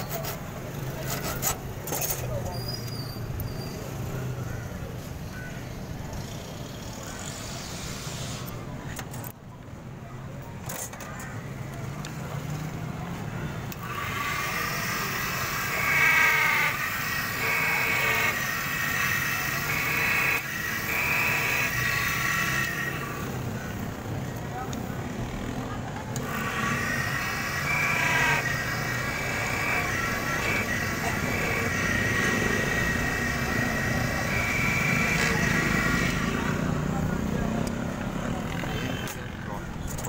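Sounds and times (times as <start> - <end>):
key cutting machine grinding: 13.8 - 23.3, 26.2 - 36.6.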